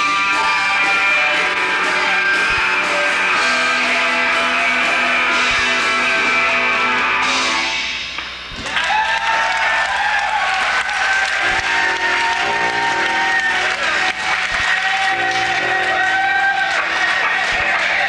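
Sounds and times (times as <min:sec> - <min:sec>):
live punk band playing: 0:00.0 - 0:08.0, 0:11.1 - 0:18.0
audience applause: 0:08.6 - 0:18.0.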